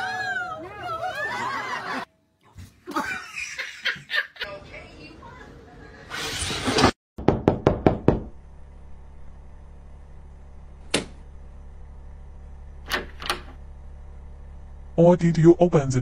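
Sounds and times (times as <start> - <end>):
knocks on a door: 7.2 - 8.4
low steady hum: 7.9 - 16.0.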